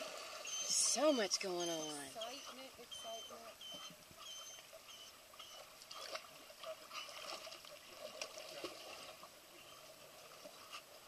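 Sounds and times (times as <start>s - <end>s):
pool water lapping: 0.0s - 11.0s
light taps and splashes: 5.4s - 9.4s.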